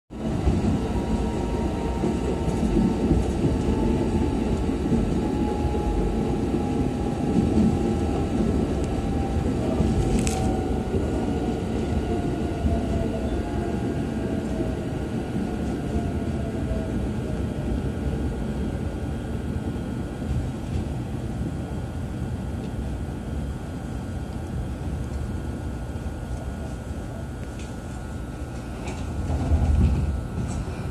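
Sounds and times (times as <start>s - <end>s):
train wheels rumbling on rail: 0.1s - 30.9s
train motor whine: 0.7s - 14.7s.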